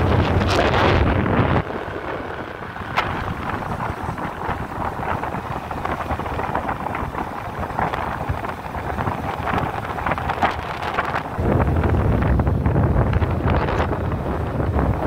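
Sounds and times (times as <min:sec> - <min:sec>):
scooter engine and road noise: 0:00.0 - 0:15.0
wind rushing over microphone: 0:00.0 - 0:15.0.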